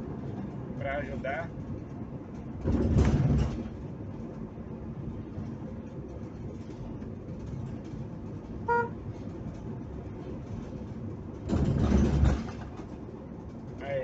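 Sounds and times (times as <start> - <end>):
car road and engine noise: 0.0 - 14.0
low rumbling rush: 0.0 - 14.0
car horn toot: 8.6 - 9.0.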